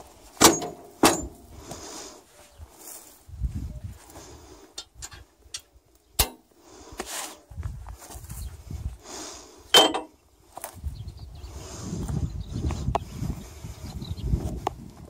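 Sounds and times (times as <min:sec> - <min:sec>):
footsteps in dry grass: 0:00.0 - 0:04.8, 0:06.6 - 0:09.6, 0:10.3 - 0:15.0
sharp knocks with metallic ring: 0:00.4 - 0:01.4, 0:09.8 - 0:10.2.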